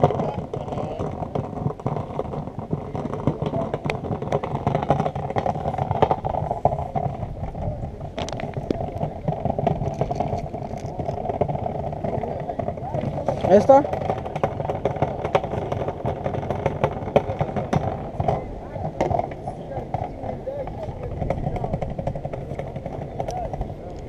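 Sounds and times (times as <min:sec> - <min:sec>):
muffled rumble: 0:00.0 - 0:24.0.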